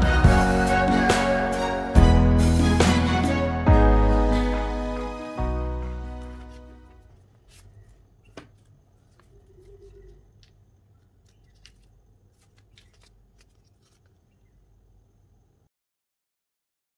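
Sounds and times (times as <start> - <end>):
paper rustling: 6.1 - 14.4.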